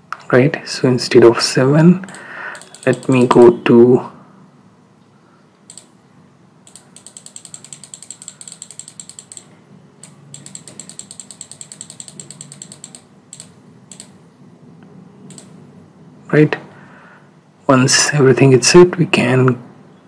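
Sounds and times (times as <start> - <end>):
computer mouse clicking: 2.0 - 3.4, 5.7 - 5.9, 6.7 - 14.2, 15.3 - 15.6.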